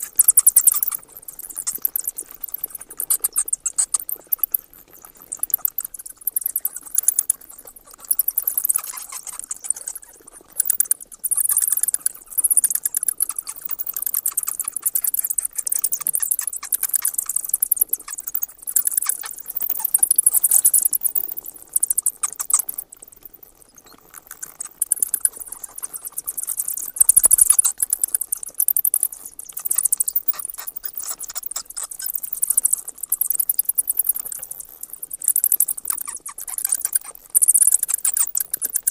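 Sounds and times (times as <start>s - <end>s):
bats chattering: 0.0s - 38.9s.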